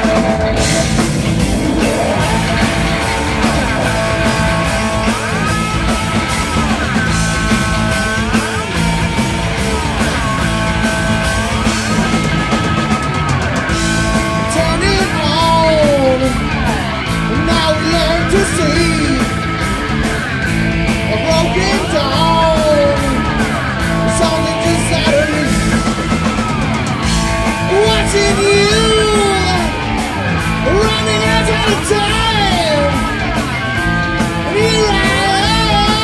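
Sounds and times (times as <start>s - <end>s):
bass guitar: 0.0s - 36.0s
drums and cymbals: 0.0s - 36.0s
electric guitar: 0.0s - 36.0s
man singing: 14.0s - 19.5s, 21.0s - 23.4s, 24.0s - 26.0s, 27.6s - 29.9s, 30.6s - 33.0s, 34.4s - 36.0s.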